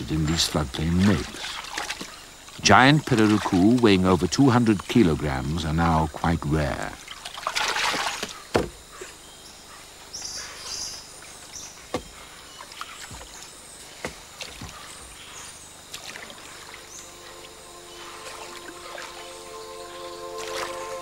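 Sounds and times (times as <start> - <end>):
water splashing: 0.0 - 5.1, 6.2 - 8.8, 11.4 - 21.0
knocks on wooden canoe hull: 8.0 - 8.8, 11.9 - 12.2.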